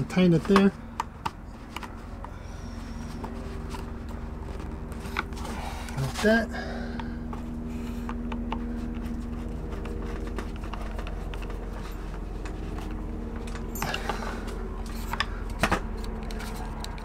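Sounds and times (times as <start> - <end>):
steady low hum: 0.0 - 17.0
hands clicking and tapping a mount: 0.2 - 2.4, 8.0 - 17.0.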